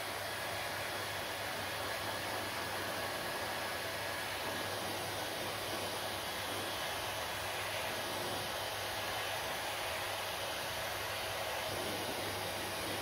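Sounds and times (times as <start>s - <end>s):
hair dryer running: 0.0s - 13.0s.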